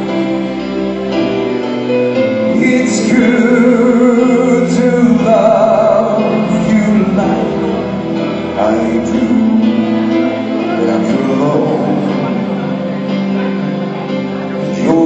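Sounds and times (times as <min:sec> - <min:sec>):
backing music: 0:00.0 - 0:15.0
man singing into microphone: 0:02.4 - 0:13.9, 0:14.6 - 0:15.0.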